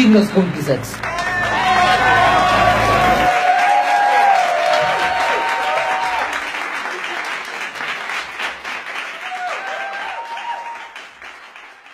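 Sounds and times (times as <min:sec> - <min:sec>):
audience applauding: 0:00.9 - 0:11.9.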